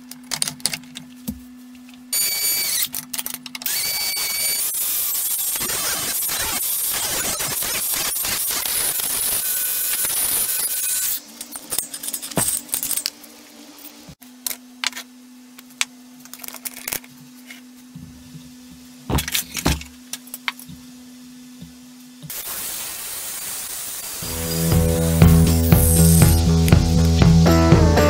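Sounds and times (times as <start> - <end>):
angle grinder grinding steel: 3.6 - 13.2, 23.8 - 27.1.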